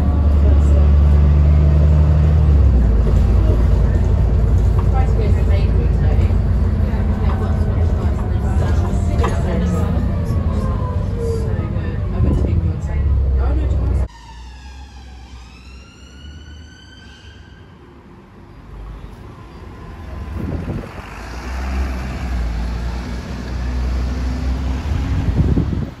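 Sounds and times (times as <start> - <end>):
bus engines rumbling: 0.0 - 26.0
street traffic: 0.0 - 26.0
whine changing pitch: 14.0 - 18.0.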